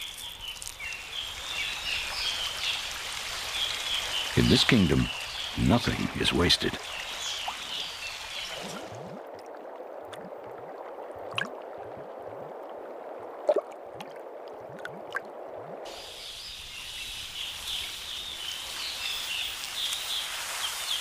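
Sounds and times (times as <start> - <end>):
forest ambience: 0.0 - 9.3, 15.6 - 21.0
water trickling and gurgling: 0.0 - 21.0.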